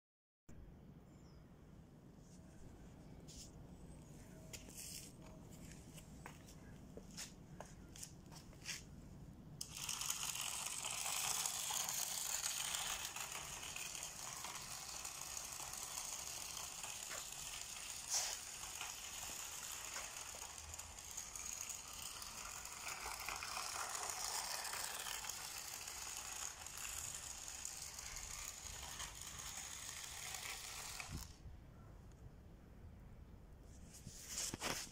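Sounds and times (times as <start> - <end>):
toy car motor whirring: 9.6 - 31.4.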